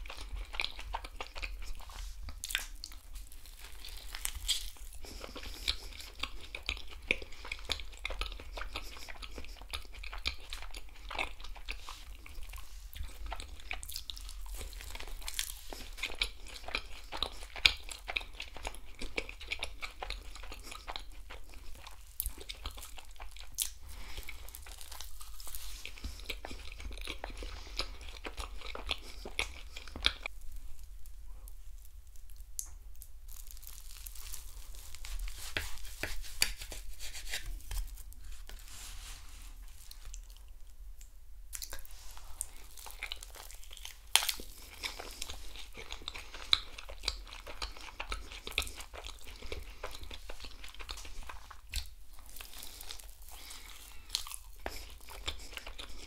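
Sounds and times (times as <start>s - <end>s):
crunching and chewing: 0.0s - 56.0s.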